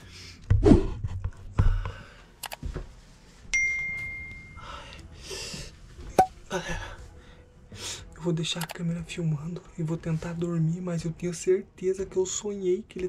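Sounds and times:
bell-like ding: 3.5s - 4.6s.

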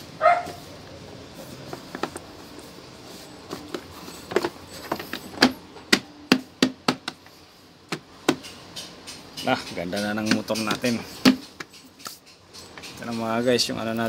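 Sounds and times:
hand slapping rubber mat: 5.4s - 7.2s.

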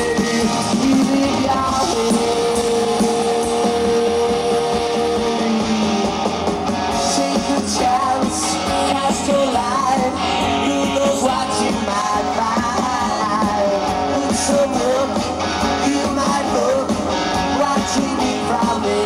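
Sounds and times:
man singing: 0.0s - 6.1s, 6.9s - 19.0s
drums with cymbals: 0.0s - 19.0s
electric guitars: 0.0s - 19.0s.

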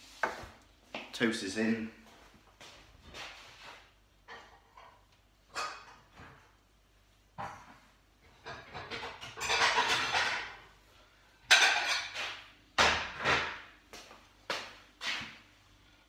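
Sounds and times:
dishes and utensils clattering: 4.2s - 6.4s, 7.4s - 10.7s, 11.4s - 13.6s.

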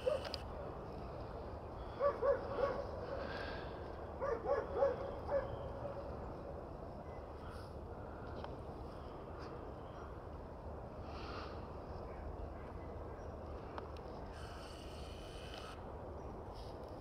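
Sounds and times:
dog barking: 0.0s - 0.3s, 2.0s - 2.9s, 4.2s - 5.6s.

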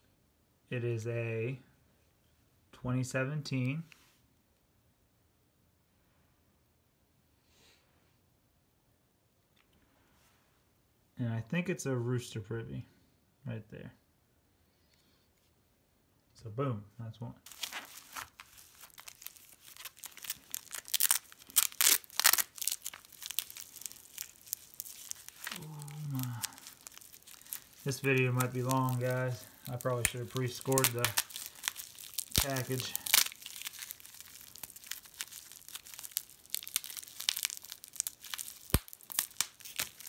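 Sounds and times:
bubble wrap crinkling: 17.5s - 40.0s.

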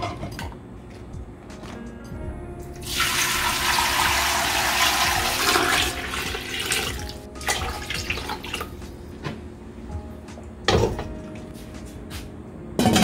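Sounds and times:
water gushing: 2.8s - 8.7s.

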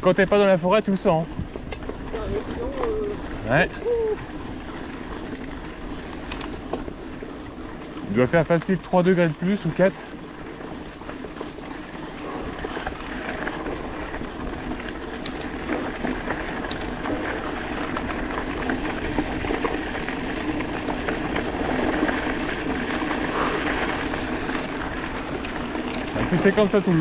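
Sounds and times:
bike rattling: 0.1s - 27.0s
bike tyres on gravel: 0.1s - 27.0s
faint high steady tone: 18.4s - 24.7s.

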